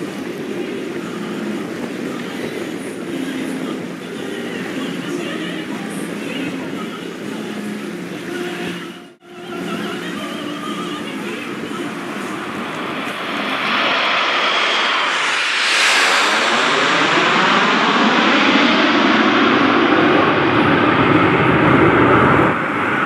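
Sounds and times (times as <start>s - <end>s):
jet aircraft roar: 0.0s - 8.8s, 9.4s - 23.0s.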